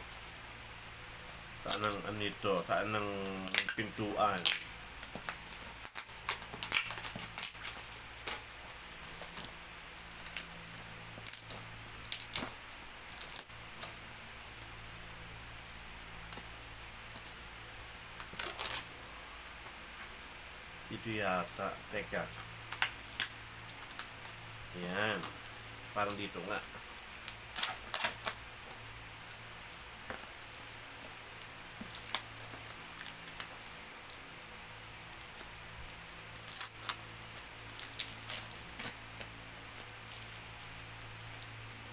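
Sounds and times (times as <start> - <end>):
light clicks and crinkles: 1.2 - 14.0, 16.2 - 16.5, 18.2 - 20.3, 21.0 - 34.2, 35.1 - 41.9
fingers scratching plastic-wrapped box: 3.0 - 8.4.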